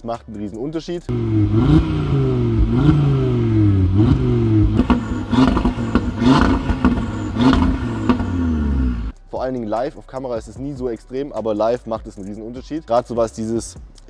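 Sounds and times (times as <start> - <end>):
car engine and exhaust: 1.1 - 9.2
exhaust crackle: 1.1 - 9.2.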